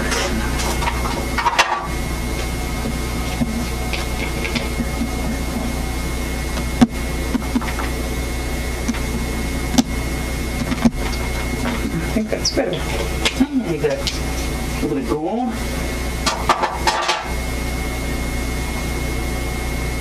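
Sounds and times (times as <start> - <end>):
electrical hum and hiss: 0.0 - 20.0
thin high whine: 0.0 - 20.0.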